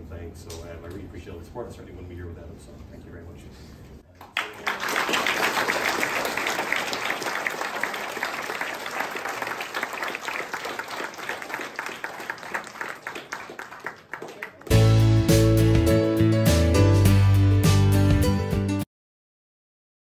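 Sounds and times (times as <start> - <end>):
audience applauding: 4.2 - 14.9.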